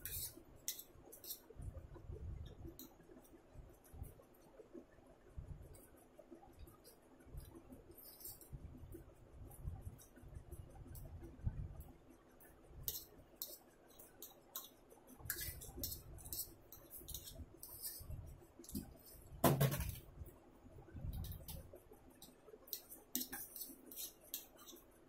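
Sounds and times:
fork scraping ceramic plate: 0.0s - 1.4s, 8.0s - 8.5s, 12.8s - 18.1s, 22.7s - 24.8s.

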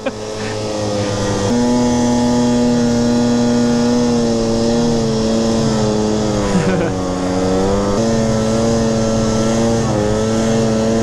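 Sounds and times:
snowmobile engine revving: 0.0s - 11.0s.

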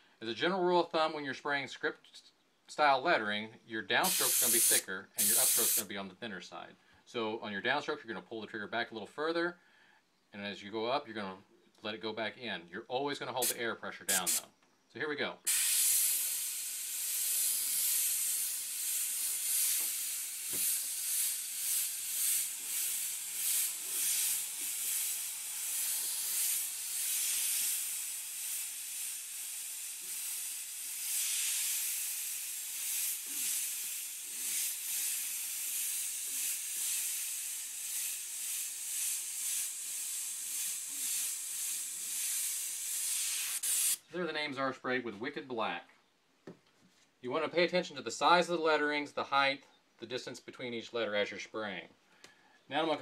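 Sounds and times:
airbrush spraying hiss: 4.0s - 5.9s, 13.4s - 14.5s, 15.5s - 44.0s.

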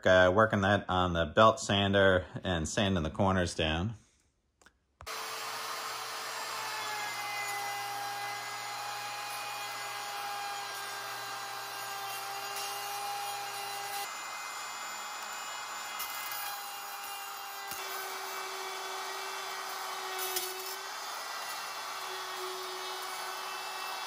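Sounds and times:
router whining while cutting wood: 5.1s - 24.0s.

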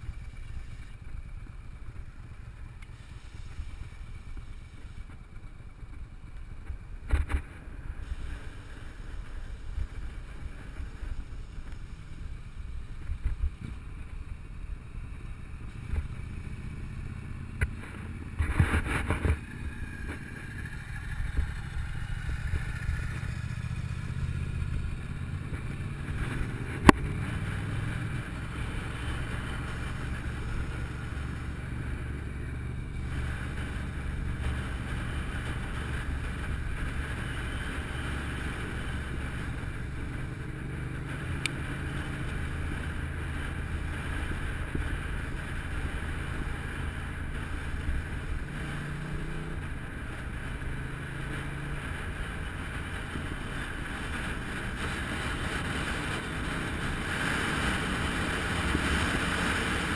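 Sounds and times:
motorcycle engine at low revs: 0.0s - 59.9s
wind rushing over microphone: 17.5s - 59.9s.

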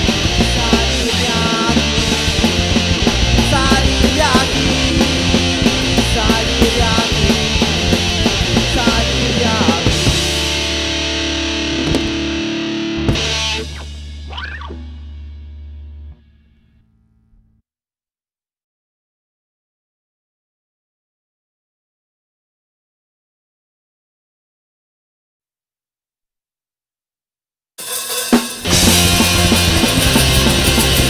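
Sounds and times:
punk rock song: 0.0s - 16.1s, 27.8s - 31.0s.

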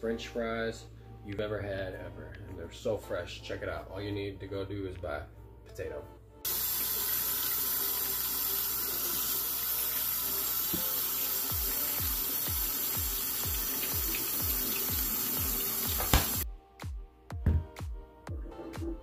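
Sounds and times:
tap water running into sink: 6.5s - 16.4s
electronic music beat: 16.4s - 19.0s.

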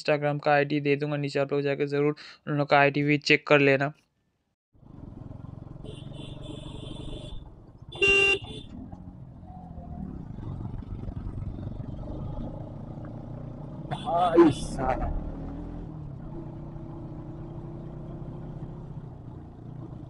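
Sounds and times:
motorcycle engine running: 4.8s - 20.0s
loud horn toot: 5.9s - 8.8s, 13.9s - 15.0s.

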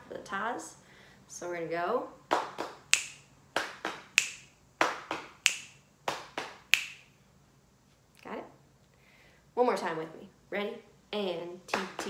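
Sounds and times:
finger snap: 2.4s - 7.1s.

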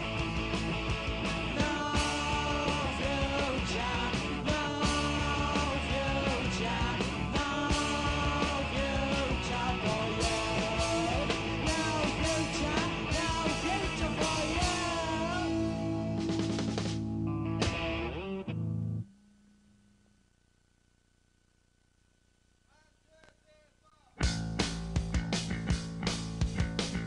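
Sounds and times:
drums: 0.0s - 18.6s, 24.1s - 27.0s
electric guitar: 0.0s - 19.2s, 24.2s - 27.0s.

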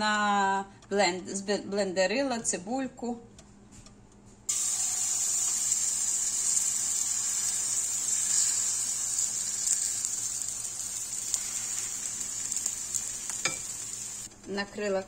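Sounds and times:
batter sizzling in frying pan: 4.5s - 14.3s.

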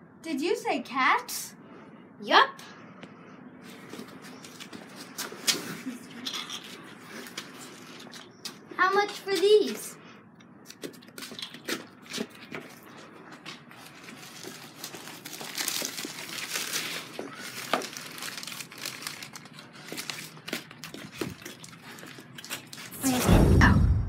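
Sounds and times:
paper crumpling and crinkling: 3.7s - 9.8s, 10.7s - 23.0s.

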